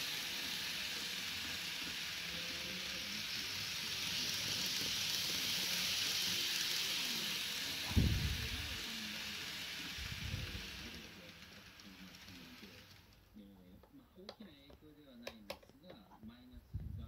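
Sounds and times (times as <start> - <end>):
model train motor hiss: 0.0 - 13.4.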